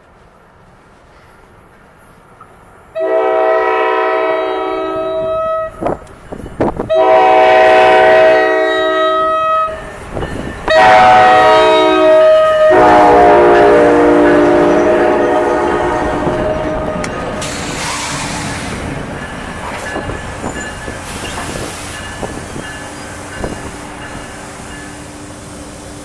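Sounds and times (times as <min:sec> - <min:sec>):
train wheels rumbling on rails: 0:00.0 - 0:26.0
locomotive air horn blasts: 0:03.0 - 0:05.8, 0:06.9 - 0:09.8, 0:10.7 - 0:17.0.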